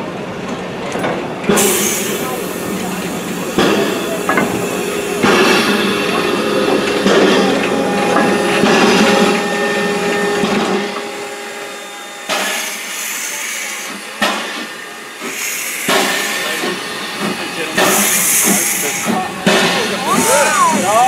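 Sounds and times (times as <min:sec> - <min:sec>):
steam locomotive hissing: 0:01.3 - 0:21.0
bursts of steam hissing: 0:12.2 - 0:21.0.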